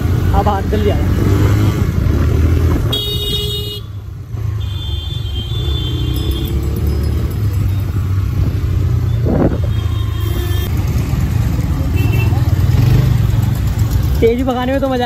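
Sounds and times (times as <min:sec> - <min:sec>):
motorcycle engine rumble: 0:00.0 - 0:15.0
road noise: 0:00.0 - 0:15.0
vehicle horns honking: 0:02.9 - 0:06.7, 0:09.1 - 0:10.7, 0:11.9 - 0:12.5.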